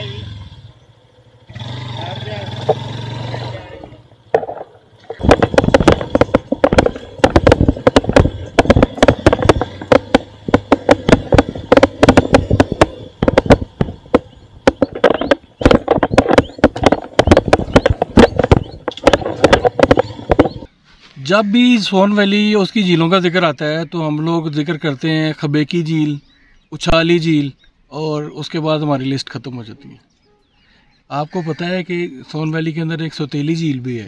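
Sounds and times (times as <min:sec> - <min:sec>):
motorcycle engine running: 0:00.0 - 0:20.7
wind buffeting microphone: 0:05.2 - 0:20.7.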